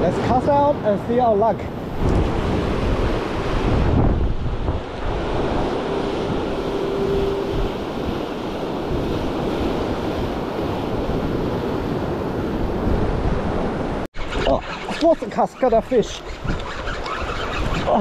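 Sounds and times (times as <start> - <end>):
ocean surf breaking over boulders: 0.0 - 14.1
wind buffeting microphone: 1.4 - 18.0.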